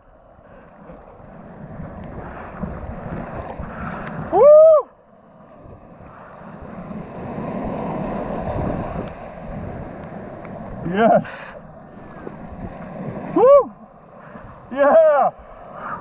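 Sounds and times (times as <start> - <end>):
ocean surf rushing: 0.0 - 16.0
person whooping: 4.3 - 5.0, 13.3 - 13.8.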